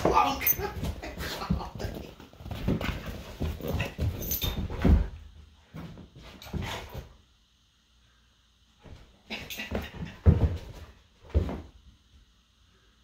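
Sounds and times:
dogs playing rough: 0:00.0 - 0:07.2.

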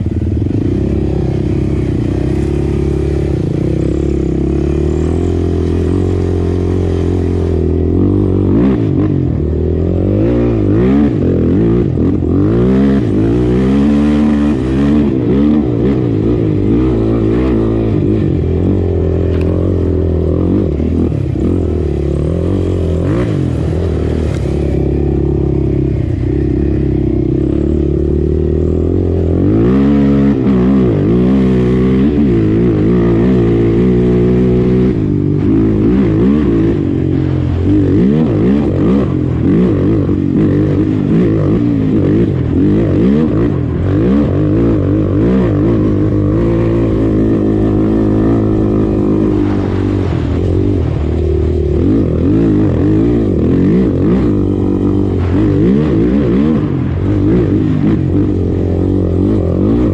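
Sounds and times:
quad engine revving: 0:00.0 - 0:59.9.

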